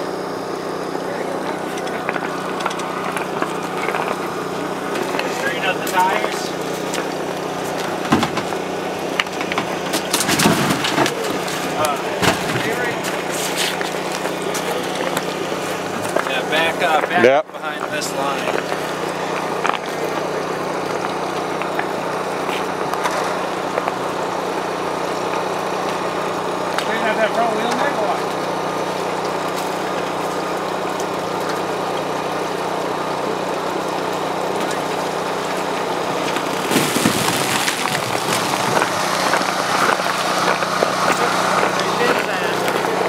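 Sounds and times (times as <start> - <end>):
engine humming: 0.0 - 43.0
footsteps crunching on snowy ice: 36.2 - 43.0.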